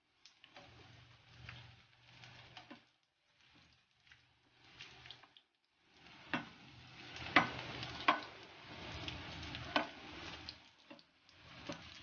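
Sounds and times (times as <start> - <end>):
fritters sizzling in oil: 0.0 - 12.0.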